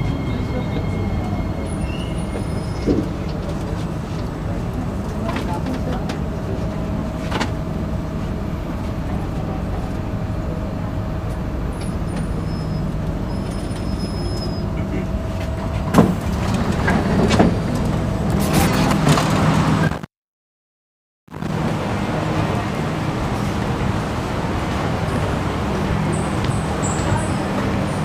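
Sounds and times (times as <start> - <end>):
passengers stepping off: 0.0 - 20.0, 21.4 - 28.0
train rumble and hum: 0.0 - 20.0, 21.3 - 28.0
sliding doors opening: 11.8 - 19.9.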